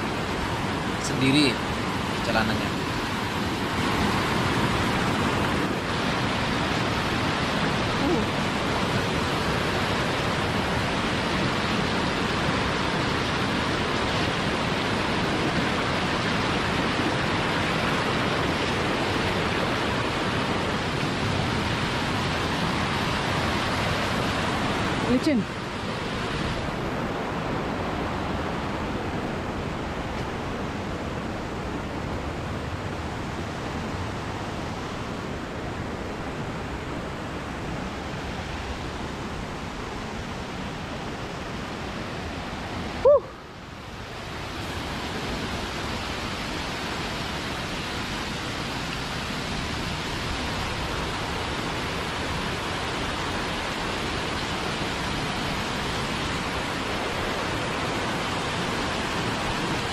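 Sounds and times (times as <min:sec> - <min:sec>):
stream and waterfall rushing: 0:00.0 - 0:59.9.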